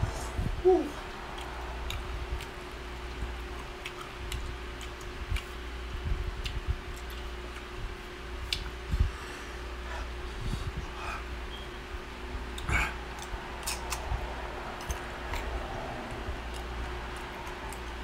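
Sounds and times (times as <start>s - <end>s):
person humming mm: 0.0s - 1.1s
steady low hum: 0.0s - 18.0s
person chewing: 1.0s - 5.8s, 6.4s - 7.8s, 8.4s - 8.8s, 12.5s - 14.0s, 14.8s - 18.0s
wet mouth clicks and smacks: 1.3s - 2.6s, 3.2s - 5.6s, 6.4s - 7.8s, 8.4s - 8.8s, 12.5s - 14.1s.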